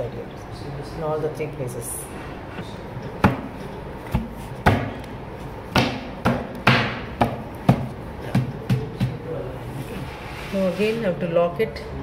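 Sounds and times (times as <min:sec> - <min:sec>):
sharp knocks on wooden panels: 0:03.2 - 0:03.5, 0:04.1 - 0:05.0, 0:05.7 - 0:09.2.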